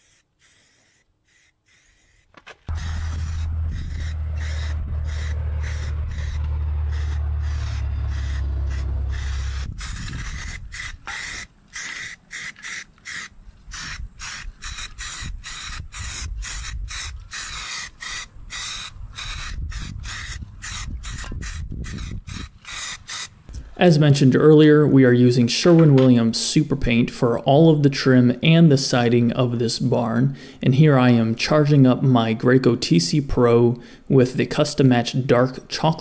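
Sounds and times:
spray can hissing in bursts: 0.0s - 4.0s
low rumble: 2.7s - 11.1s.

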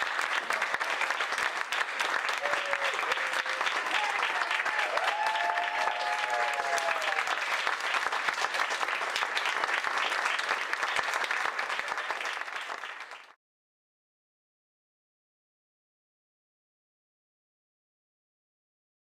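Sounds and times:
audience clapping: 0.0s - 13.4s.

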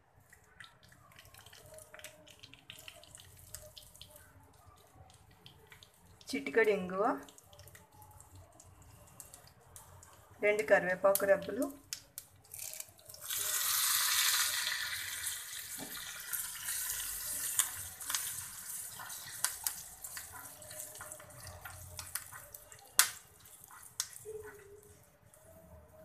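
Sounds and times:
leaves sizzling in hot oil: 12.5s - 24.6s.

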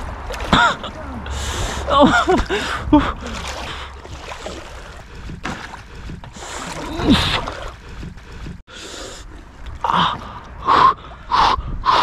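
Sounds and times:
water splashing from wading: 0.0s - 8.6s.

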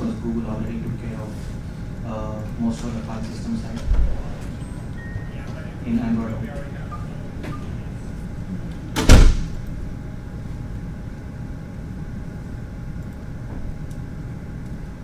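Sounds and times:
loud thump: 9.0s - 9.5s.

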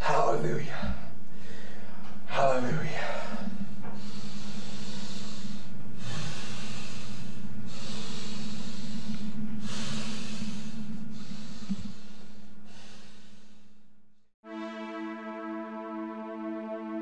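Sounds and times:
steady low hum: 0.0s - 14.4s
man breathing heavily: 0.7s - 2.3s, 2.9s - 14.3s.

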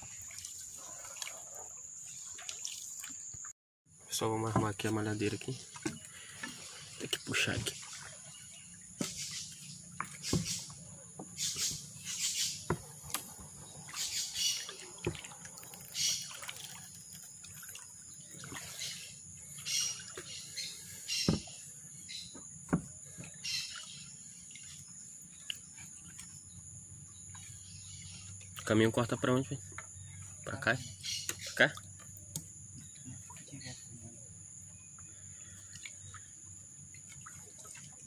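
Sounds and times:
water splashes and drips: 0.0s - 3.6s, 4.2s - 38.0s
knocks against canoe hull: 10.0s - 10.6s, 12.6s - 13.6s, 21.2s - 21.6s, 22.3s - 23.3s.

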